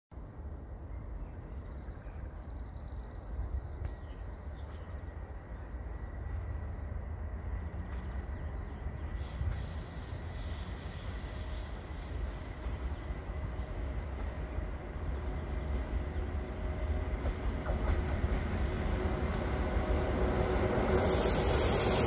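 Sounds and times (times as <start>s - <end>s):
distant train rumble: 0.2s - 22.0s
approaching train hiss: 4.3s - 22.0s
small birds chirping: 17.6s - 19.5s.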